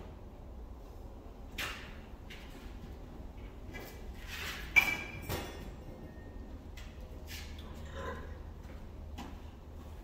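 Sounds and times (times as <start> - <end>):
low shop hum: 0.0 - 10.0.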